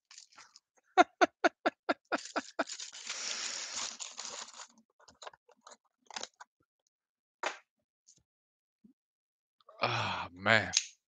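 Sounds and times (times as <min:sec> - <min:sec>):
man laughing: 0:01.0 - 0:02.7.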